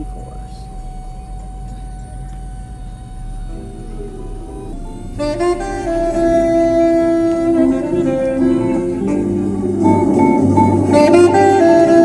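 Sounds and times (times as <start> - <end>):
plucked guitar music: 3.0 - 12.0.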